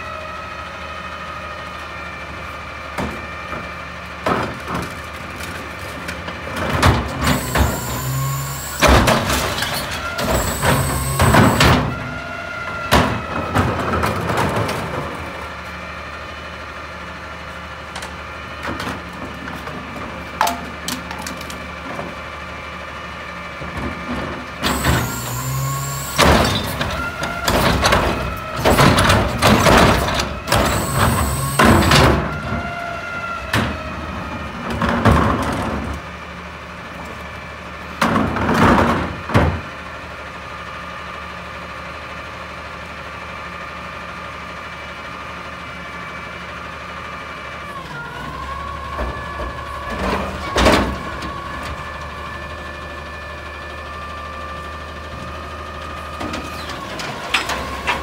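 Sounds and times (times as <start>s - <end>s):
diesel engine: 0.0s - 58.0s
hydraulic whine: 7.0s - 13.2s, 24.6s - 33.6s.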